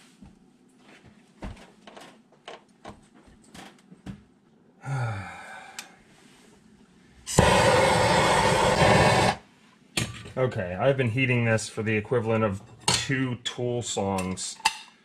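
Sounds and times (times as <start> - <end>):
propane torch hissing: 7.3 - 9.5.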